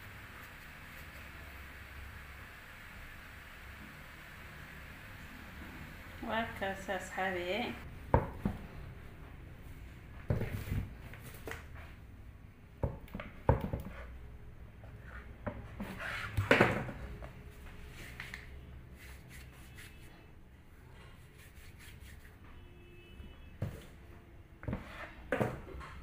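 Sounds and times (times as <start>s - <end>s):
rubbing rustling sound: 17.5s - 20.3s, 21.0s - 22.4s.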